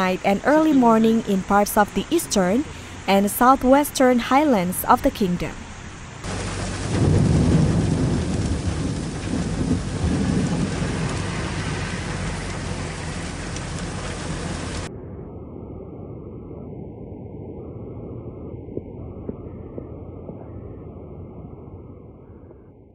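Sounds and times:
heavy rain pouring: 0.0s - 14.9s
low rumble: 5.8s - 22.9s
traffic driving through floodwater: 6.2s - 14.9s.

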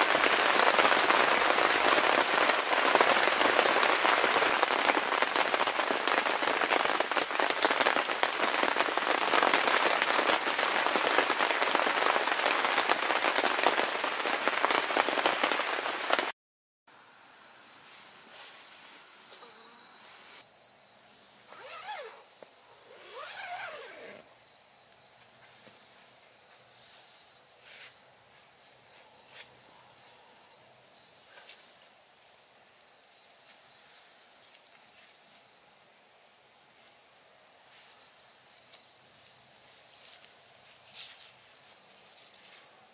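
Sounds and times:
rain pattering on a tent: 0.0s - 16.3s, 36.6s - 42.9s
insect chirping: 17.2s - 28.0s, 28.6s - 31.7s, 32.8s - 36.0s, 37.7s - 39.8s.

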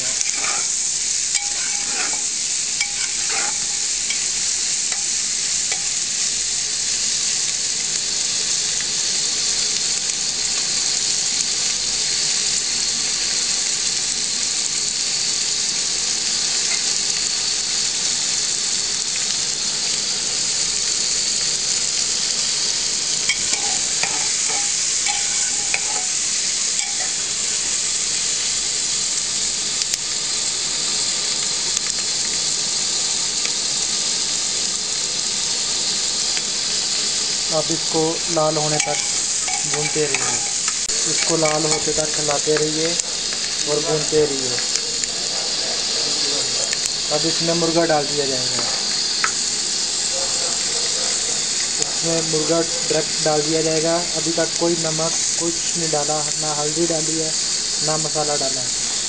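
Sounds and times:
spatula scraping and clinking pot: 0.0s - 6.0s, 23.2s - 27.6s, 38.6s - 42.5s
onions sizzling in hot oil: 0.0s - 59.0s.

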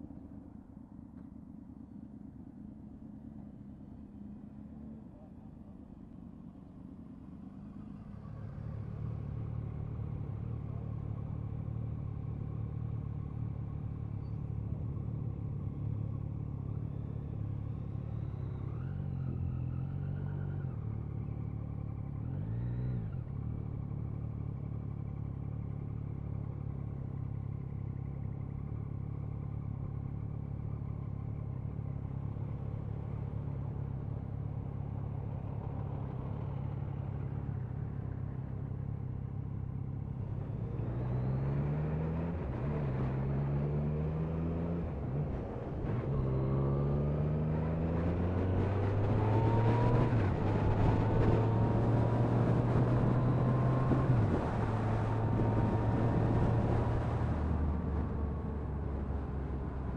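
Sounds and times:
motorcycle engine: 41.9s - 59.9s.

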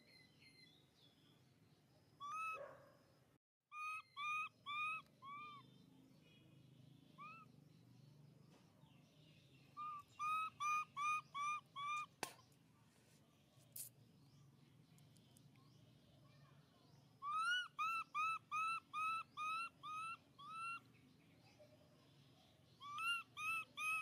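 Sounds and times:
high whistle-like animal calls: 22.8s - 24.0s.

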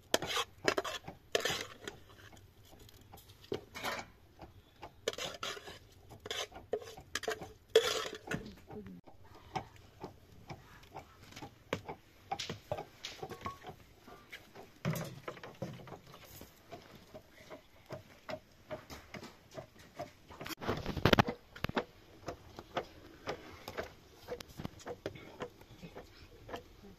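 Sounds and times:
ladle tapping and scraping pot: 0.0s - 13.8s, 14.4s - 26.8s
dishes clattering: 3.5s - 4.2s.

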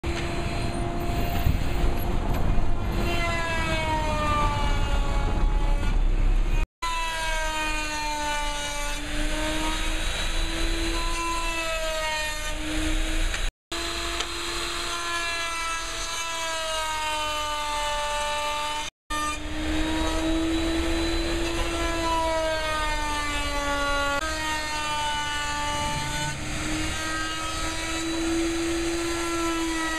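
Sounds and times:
table saw motor whine: 0.1s - 1.6s, 6.8s - 18.2s, 19.1s - 29.9s.

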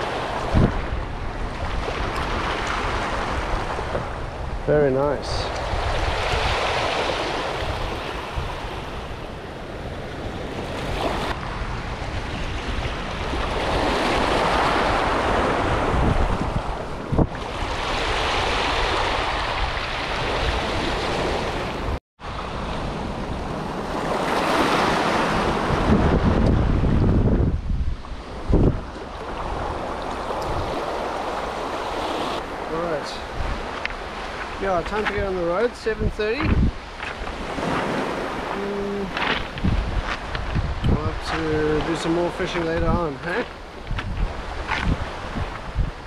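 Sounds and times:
wind rumbling on microphone: 0.0s - 46.0s
waves washing on rocky shore: 28.3s - 46.0s.

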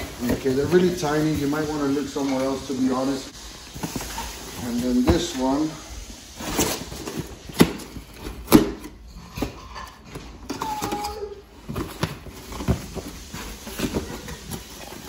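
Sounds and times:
cardboard rustling: 0.0s - 15.0s.

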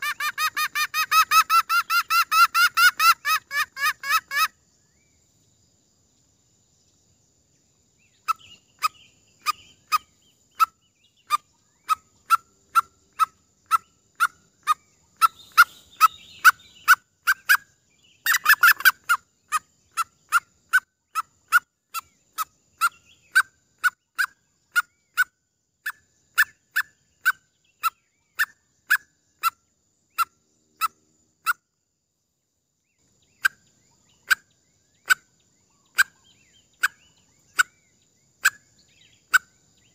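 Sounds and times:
clucking bird lure calls: 0.0s - 4.5s, 8.2s - 29.6s, 33.3s - 35.2s, 35.8s - 37.7s, 38.4s - 38.6s.

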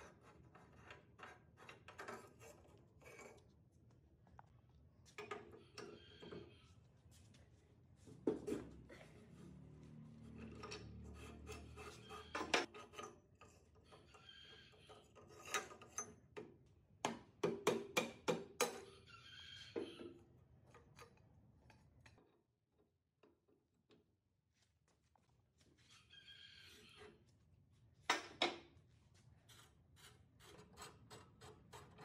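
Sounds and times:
scraping and rubbing metal: 10.0s - 16.2s.

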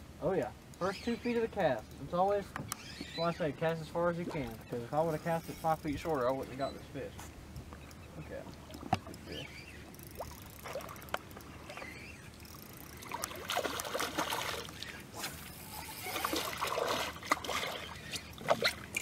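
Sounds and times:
fish thrashing and splashing: 8.7s - 19.0s.

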